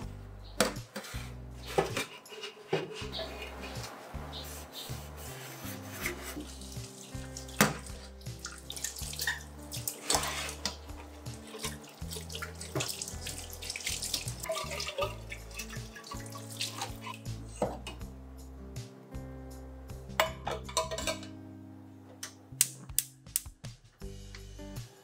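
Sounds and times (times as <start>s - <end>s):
kettle being scrubbed: 1.0s - 7.2s, 9.2s - 11.8s
water splashing: 6.3s - 17.2s
tap running into metal sink: 7.6s - 9.4s.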